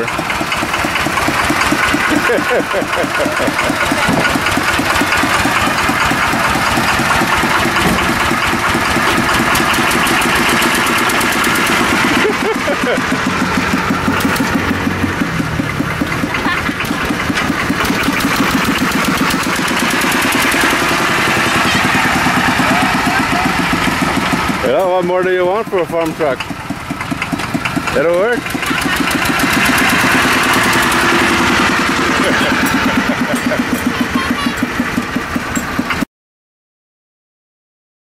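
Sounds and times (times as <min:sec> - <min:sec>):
diesel engine chugging: 0:00.0 - 0:36.1.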